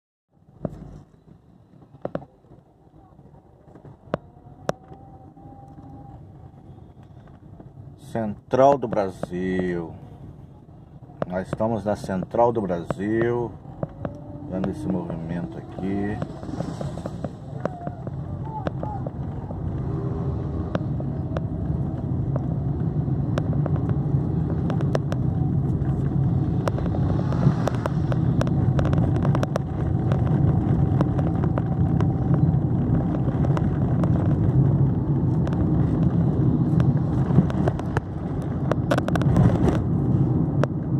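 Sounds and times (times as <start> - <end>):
engine and road rumble: 0.3 - 40.9
sharp rattles and clicks: 20.7 - 40.9.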